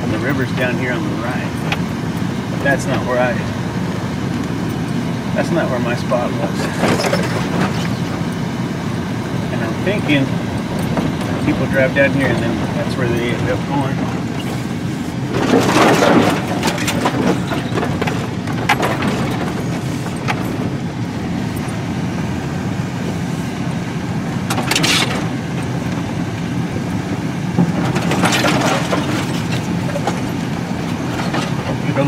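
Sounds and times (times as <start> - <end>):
vehicle engine and road rumble: 0.0 - 32.0
branches scraping vehicle body: 14.4 - 20.6, 24.5 - 25.3.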